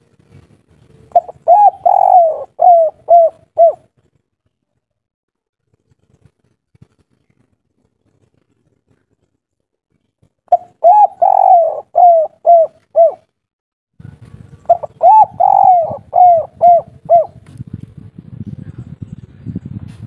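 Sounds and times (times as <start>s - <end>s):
dove cooing: 1.1s - 3.9s, 10.5s - 13.3s, 14.5s - 17.4s.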